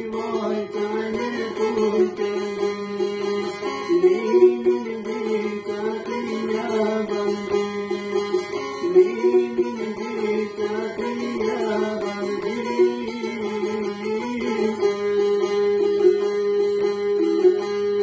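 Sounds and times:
plucked folk lute melody: 0.0 - 18.0.

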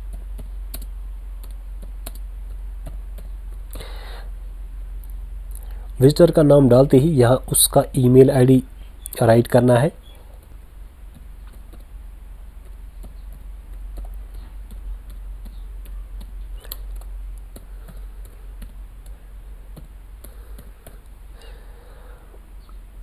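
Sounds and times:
steady low hum: 0.0 - 23.0
computer keyboard typing: 0.1 - 3.3, 10.4 - 11.9, 12.6 - 21.1.

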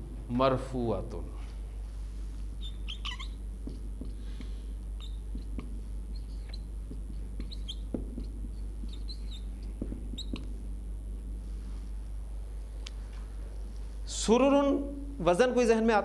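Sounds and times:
low electrical hum: 0.0 - 16.0
whiteboard marker squeaking: 2.6 - 4.2, 5.0 - 10.5
marker tapping on board: 3.6 - 4.6, 5.3 - 10.6.

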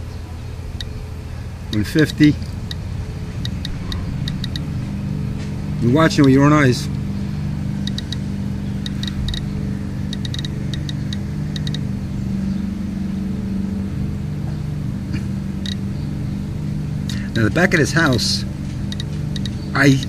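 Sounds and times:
low mechanical hum: 0.0 - 20.0
geiger counter ticks: 1.7 - 2.0, 3.4 - 4.7, 7.8 - 8.2, 8.8 - 9.5, 10.1 - 11.8, 18.9 - 19.6.

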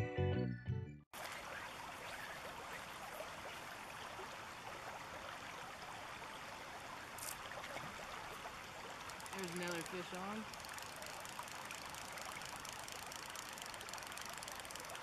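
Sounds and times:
river running over stones: 1.2 - 15.0.

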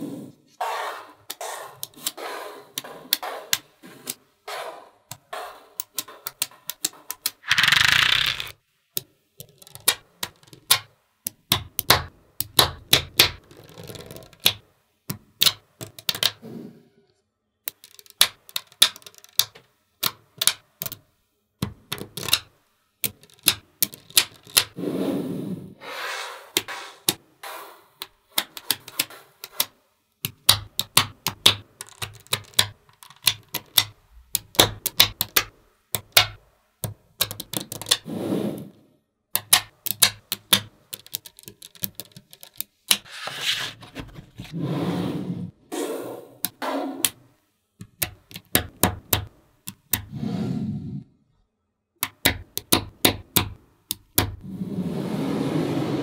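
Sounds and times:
magnetic balls clicking: 5.1 - 16.4, 17.6 - 24.8, 28.0 - 38.1, 39.3 - 43.1, 47.8 - 50.1, 52.0 - 54.4
rustling sliding: 43.1 - 45.5, 54.4 - 56.0.

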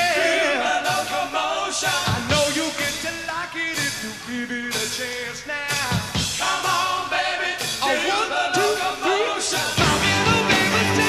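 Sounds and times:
rock band playing: 0.0 - 11.0
person singing: 7.8 - 11.0.

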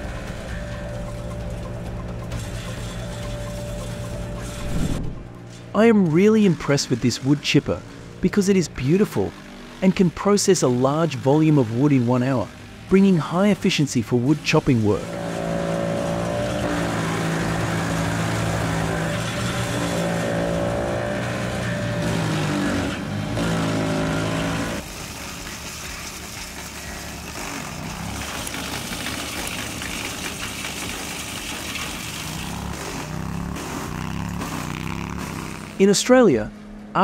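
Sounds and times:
rough mechanical noise: 0.0 - 37.0
wood chipper engine running: 0.0 - 37.0.

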